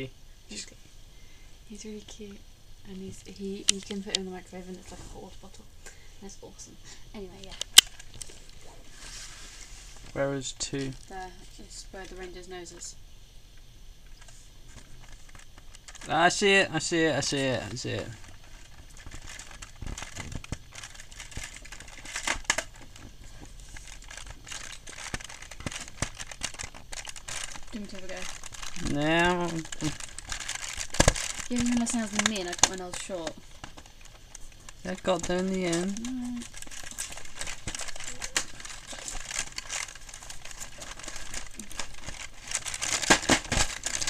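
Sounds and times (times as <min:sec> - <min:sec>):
cardboard tearing: 0:23.7 - 0:33.3, 0:35.0 - 0:44.0.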